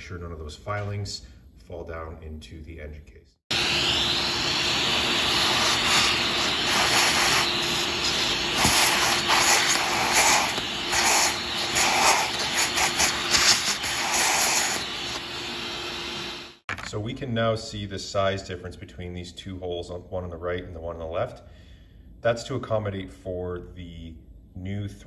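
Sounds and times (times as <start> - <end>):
vacuum cleaner sucking: 3.5 - 16.7.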